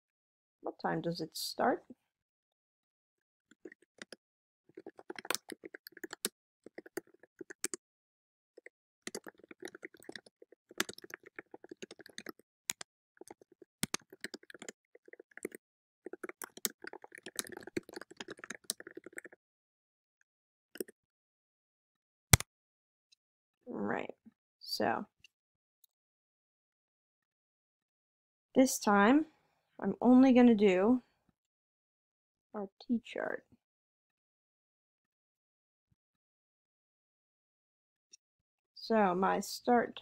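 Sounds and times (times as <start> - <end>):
computer keyboard typing: 3.6 - 7.8, 8.6 - 19.4.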